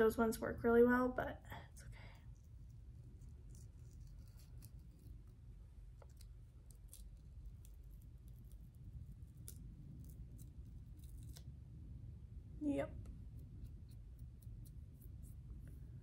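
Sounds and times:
low steady hum: 0.0 - 16.0
pore strip peeling crackles: 2.3 - 11.5.

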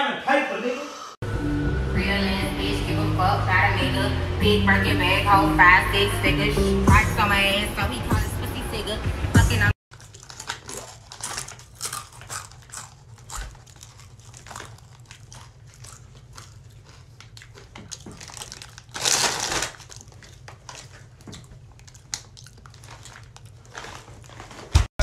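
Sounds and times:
plastic chip bag crinkling: 9.9 - 24.8.

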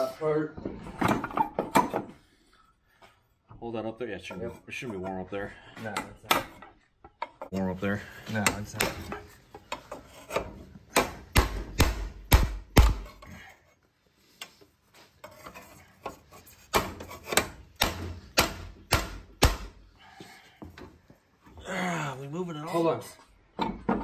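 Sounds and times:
hammer striking metal: 10.9 - 13.1.

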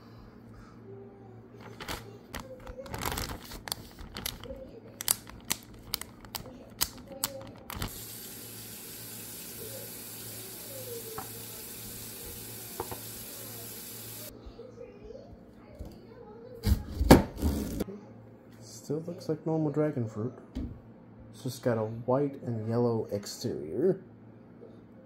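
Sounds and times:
plastic bag crinkling: 1.6 - 7.9.

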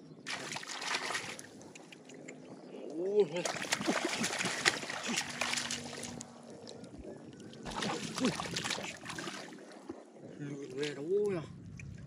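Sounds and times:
hands splashing muddy water: 0.3 - 1.5, 3.4 - 6.3, 7.6 - 9.6.

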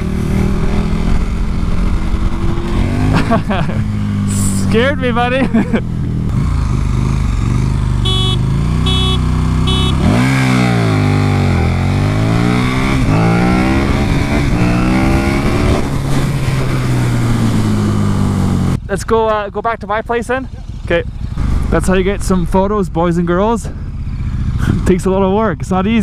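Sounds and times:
motorcycle engine revving: 0.0 - 26.0
short beeps: 8.1 - 10.1.

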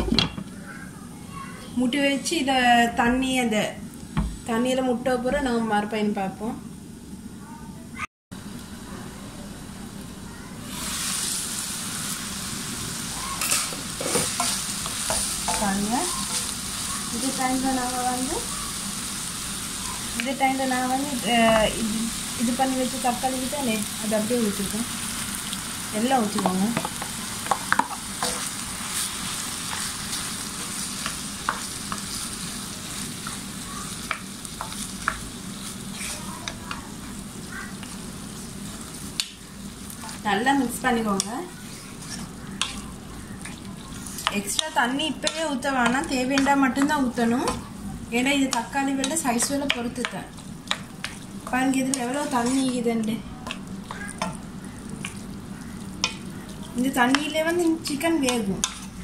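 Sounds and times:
food sizzling in a frying pan: 8.4 - 59.0
spatula scraping pan: 13.3 - 17.7, 34.0 - 38.5, 41.0 - 47.7, 48.4 - 59.0.

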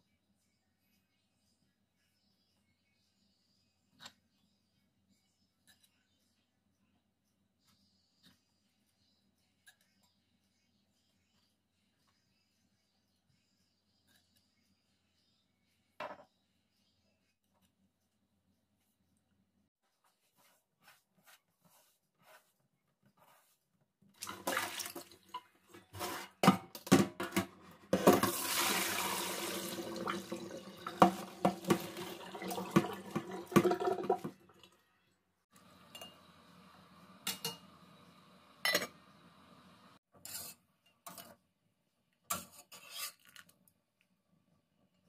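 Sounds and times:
tap water running into colander: 24.2 - 26.4, 27.3 - 34.8
metal colander and pots clinking: 24.2 - 34.3, 37.2 - 37.7, 38.6 - 39.0.

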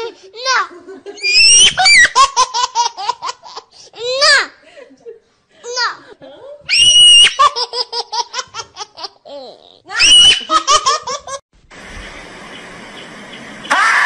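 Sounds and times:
steady hiss: 11.6 - 13.7.

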